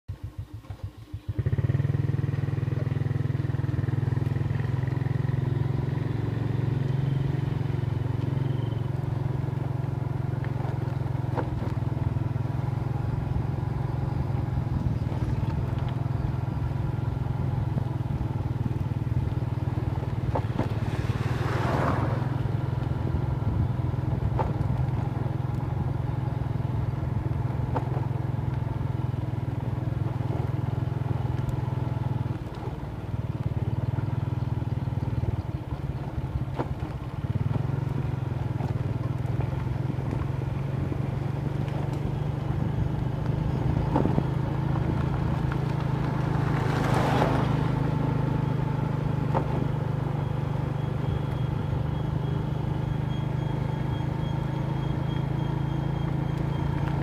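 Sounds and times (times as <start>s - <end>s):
motorbike engine running: 0.1s - 57.0s.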